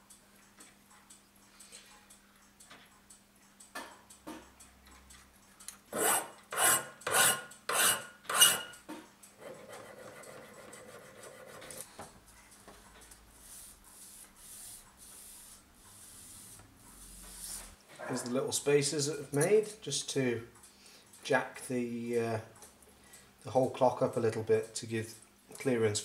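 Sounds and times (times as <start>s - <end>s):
hand file strokes on metal: 5.9s - 8.8s, 13.4s - 17.8s
metal rubbed on abrasive paper: 13.4s - 17.8s.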